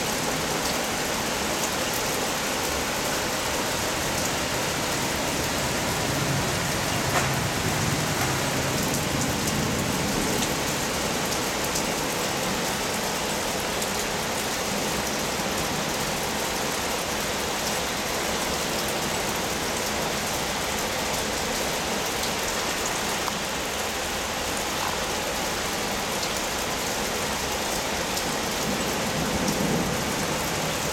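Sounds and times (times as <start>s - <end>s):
rain hissing: 0.0s - 30.9s
raindrops ticking: 5.7s - 11.7s.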